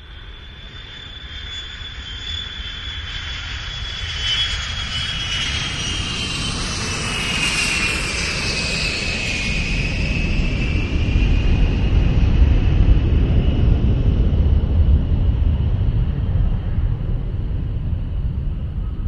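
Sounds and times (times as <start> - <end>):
aircraft engine whine: 0.0 - 19.0
deep rumble: 10.0 - 19.0.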